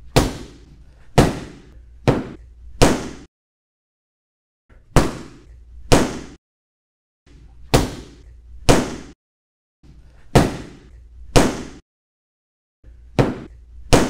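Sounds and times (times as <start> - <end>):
stick hitting punching bag: 0.0 - 3.3, 4.7 - 6.4, 7.7 - 9.2, 10.3 - 11.8, 13.1 - 14.0.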